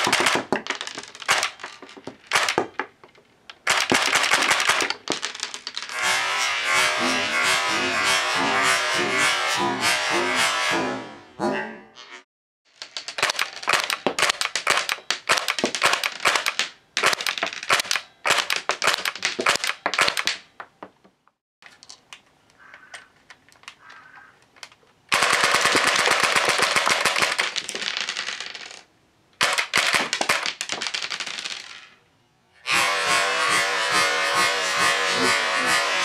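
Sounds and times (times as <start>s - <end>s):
airsoft gun firing bursts: 25.1s - 27.4s.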